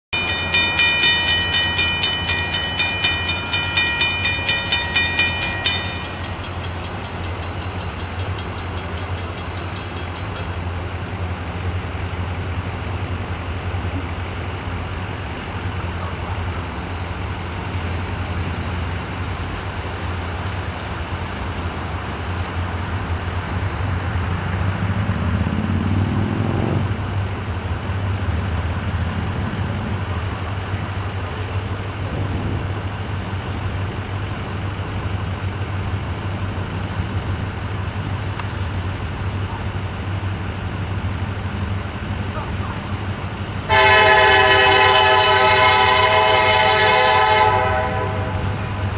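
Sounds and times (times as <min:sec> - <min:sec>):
train engine idling: 0:00.1 - 0:24.5, 0:27.0 - 0:48.9
crossing warning bell ringing: 0:00.2 - 0:11.8, 0:42.1 - 0:48.9.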